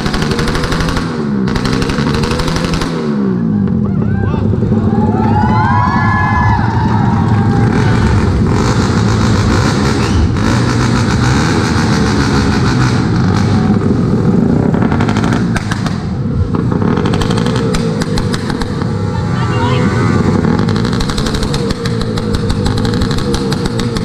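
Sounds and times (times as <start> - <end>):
exhaust crackling pops: 0.0 - 3.8, 7.3 - 19.0, 20.4 - 24.0
motorcycle engine revving: 0.0 - 24.0.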